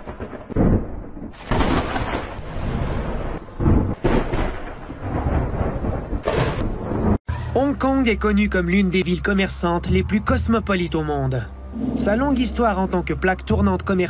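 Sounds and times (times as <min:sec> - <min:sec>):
rolling thunder rumble: 0:00.0 - 0:07.2
thunder claps: 0:00.0 - 0:07.2.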